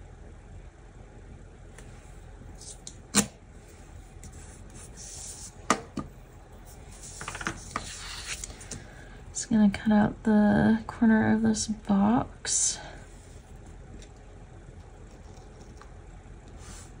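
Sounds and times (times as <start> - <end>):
paper sliding and rustling: 6.7 - 8.7.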